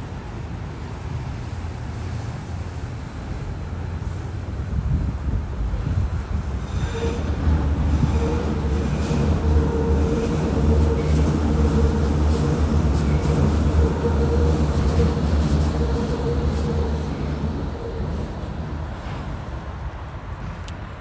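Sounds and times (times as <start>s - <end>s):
train rumbling on steel viaduct: 0.0s - 21.0s.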